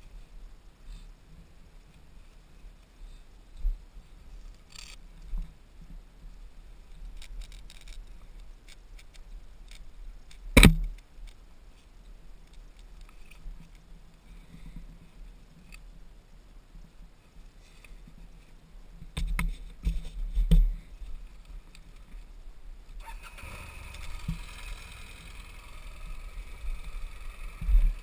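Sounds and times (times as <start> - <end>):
wind rumble on microphone: 23.8 - 28.0.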